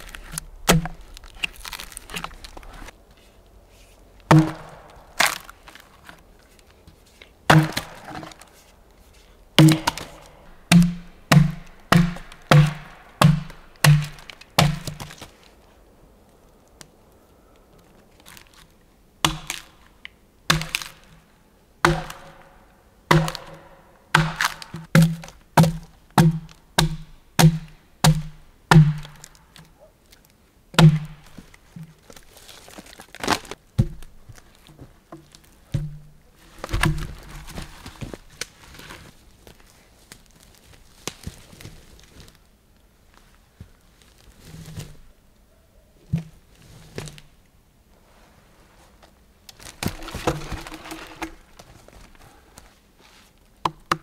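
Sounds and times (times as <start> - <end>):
axe chopping into log: 0.7 - 2.8, 4.3 - 5.5, 7.5 - 8.4, 9.6 - 15.2, 19.2 - 19.7, 20.5 - 21.0, 21.8 - 22.5, 23.1 - 29.3, 30.8 - 31.4.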